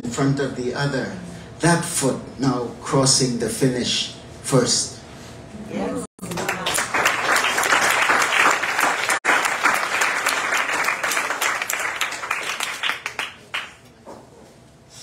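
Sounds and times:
audience applauding: 6.2 - 13.8.

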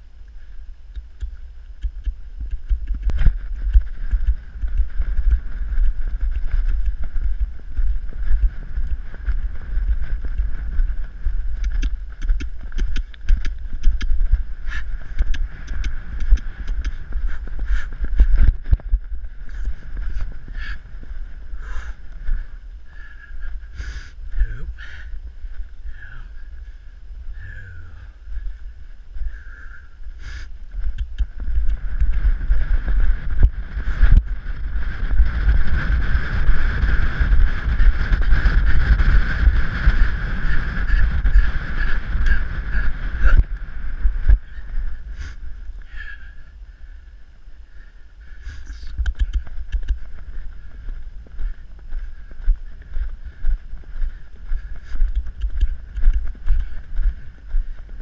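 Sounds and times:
hooves on sandy dirt: 0.0 - 58.0
wind rushing over microphone: 0.0 - 58.0.

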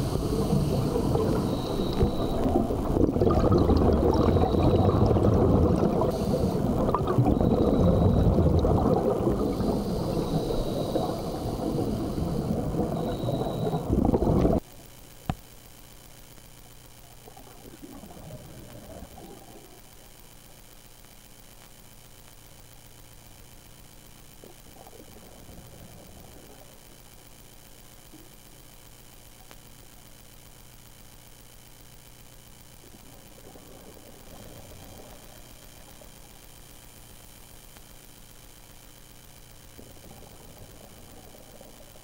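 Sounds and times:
underwater bubbles gurgling: 0.0 - 14.6, 17.1 - 20.0, 24.4 - 27.3, 32.7 - 37.1, 39.3 - 42.0
faint hiss: 0.0 - 42.0.

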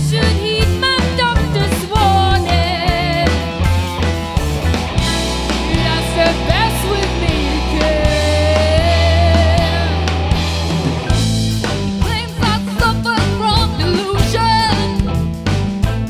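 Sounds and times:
woman singing with vibrato: 0.0 - 3.4, 5.0 - 10.0, 12.0 - 15.0
live rock band: 0.0 - 16.0.

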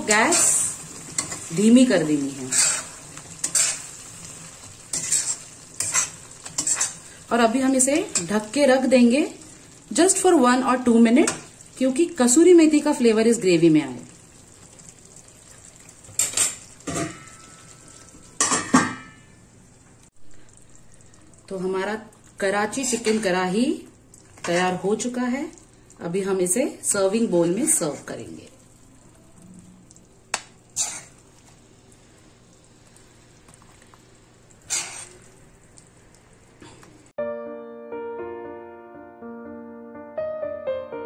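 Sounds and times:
ladle scraping and splashing gravy: 2.4 - 7.2, 30.7 - 31.6, 32.8 - 36.2
metal knocks on cookware: 18.4 - 19.2.

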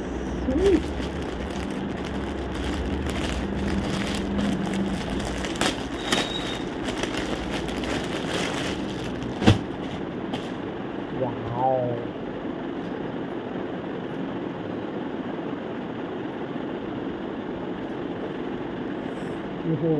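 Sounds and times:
plastic bag crinkling: 0.4 - 9.9.

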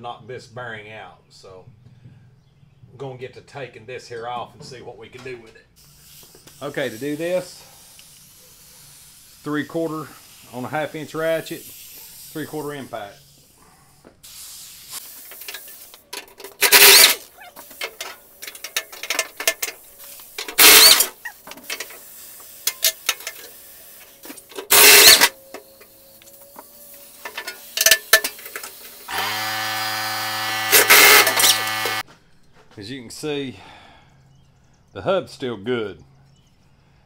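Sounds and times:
air impact wrench hammering: 16.6 - 17.2, 20.4 - 21.9, 24.6 - 25.3, 27.2 - 32.0.

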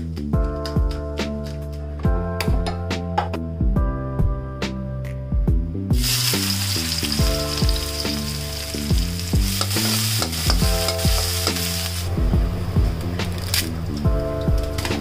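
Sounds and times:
background music with beat: 0.0 - 15.0
onions sizzling in oil: 6.0 - 12.3.

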